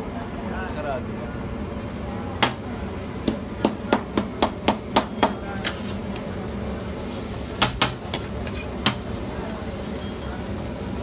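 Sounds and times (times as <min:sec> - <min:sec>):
metal spatula clacking on griddle: 0:07.6 - 0:09.1.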